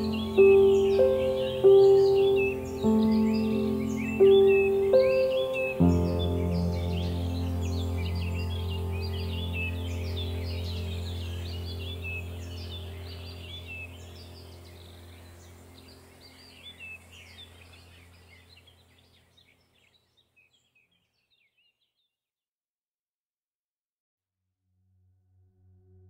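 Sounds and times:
low droning background music: 0.0s - 18.9s
small birds chirping: 0.0s - 22.2s.

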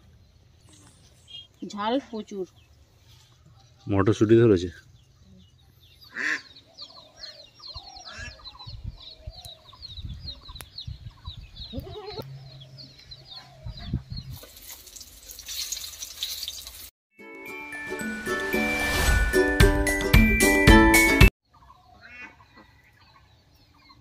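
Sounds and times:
small birds chirping: 0.0s - 15.0s, 21.5s - 24.0s
music with chiming tones: 17.2s - 21.3s.

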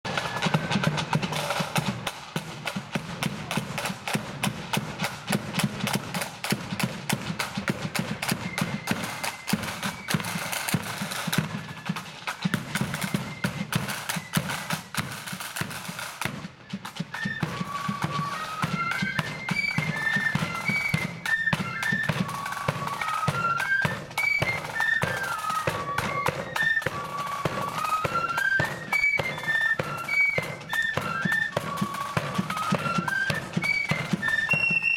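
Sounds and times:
side drums and bass drum: 0.0s - 24.8s
flutes playing a tune: 0.0s - 34.9s.

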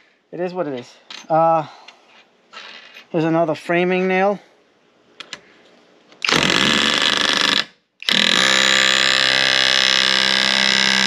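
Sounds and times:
auto hammer buzzing blows: 6.3s - 11.0s.

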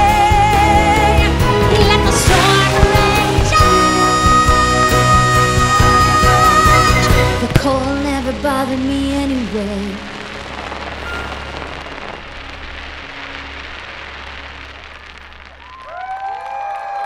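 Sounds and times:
firework stars crackling: 0.0s - 17.0s
firework shell bursting: 10.1s - 16.0s.

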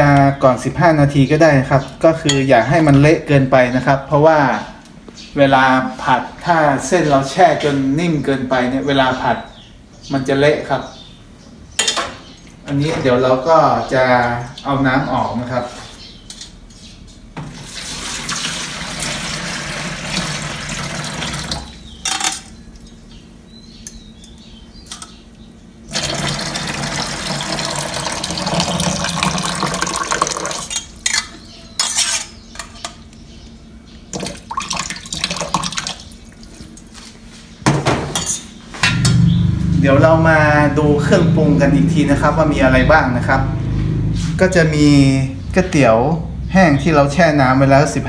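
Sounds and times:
water pouring into plastic basin: 17.6s - 21.7s, 25.9s - 30.7s, 34.2s - 36.5s.

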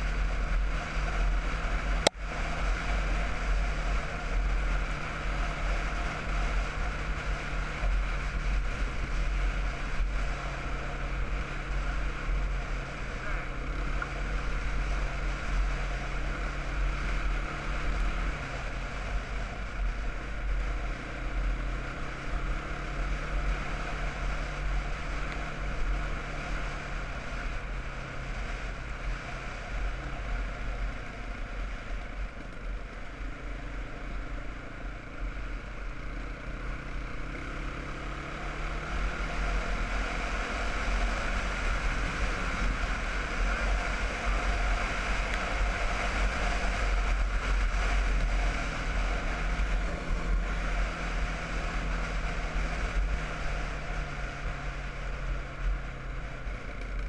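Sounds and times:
quad bike engine cruising: 0.0s - 57.0s
wind rumble on microphone: 38.4s - 57.0s.

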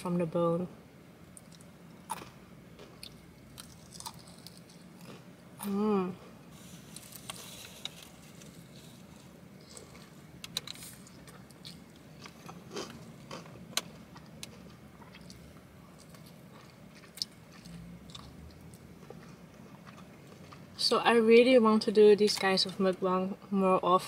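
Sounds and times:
biting and chewing: 1.4s - 5.3s, 6.9s - 20.8s.

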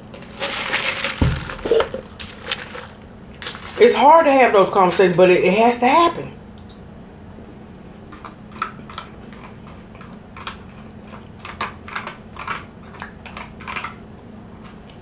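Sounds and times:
faint steady hum: 0.0s - 15.0s
chewing sounds: 8.0s - 15.0s.

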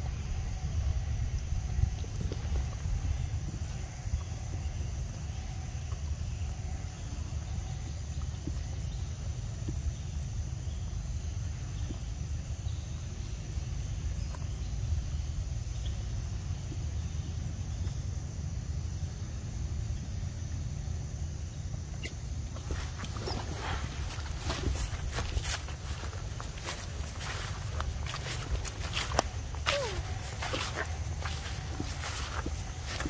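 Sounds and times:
wind rumble on microphone: 0.0s - 18.5s, 22.4s - 33.0s
high-pitched insect drone: 18.5s - 33.0s.

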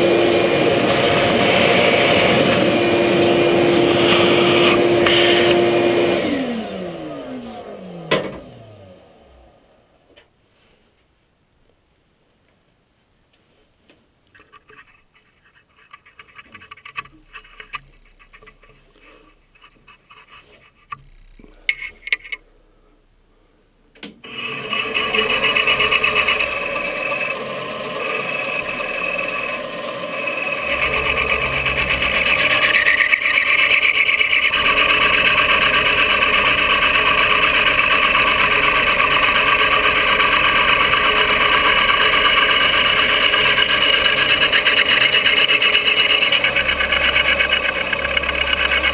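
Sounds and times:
milling machine cutting: 0.0s - 8.2s, 24.2s - 48.9s.

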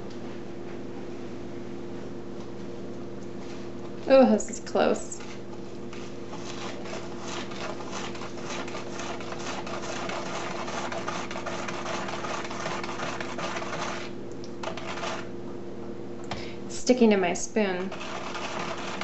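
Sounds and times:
spoon scraping plastic tub: 5.0s - 15.3s, 17.8s - 19.0s.

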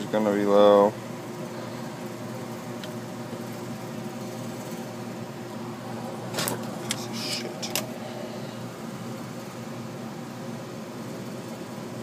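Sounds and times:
heat pump humming: 0.0s - 12.0s.

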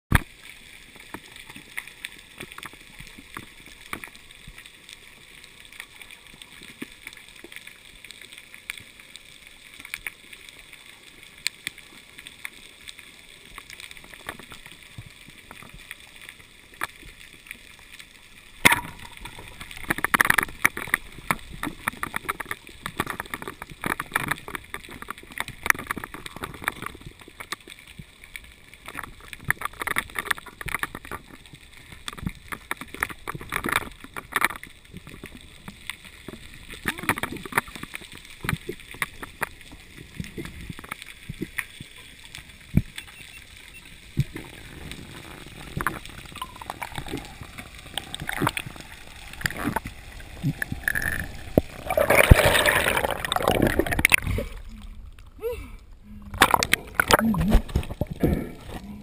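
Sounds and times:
underwater clicks crackling: 0.1s - 59.0s.

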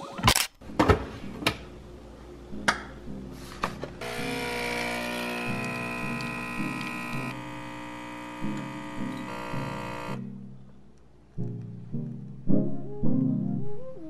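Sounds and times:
espresso machine pump buzzing: 4.0s - 10.2s.

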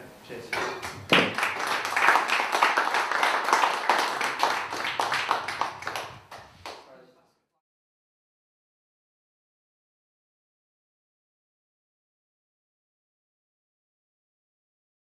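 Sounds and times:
audience applauding: 0.6s - 6.9s.

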